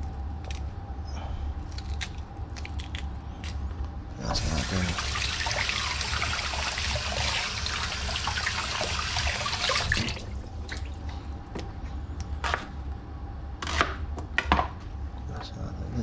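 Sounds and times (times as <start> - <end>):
water pouring into pot: 4.4 - 10.9.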